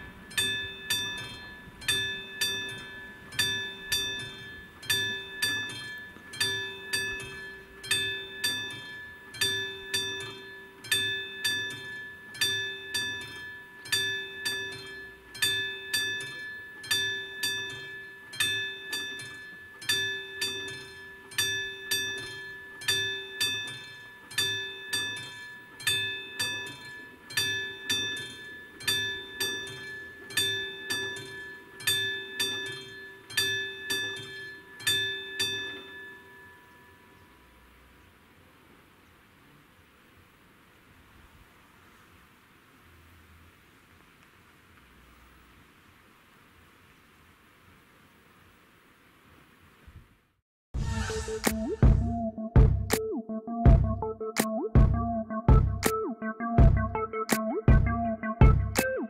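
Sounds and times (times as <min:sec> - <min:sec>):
level crossing warning bell: 0:00.0 - 0:37.9.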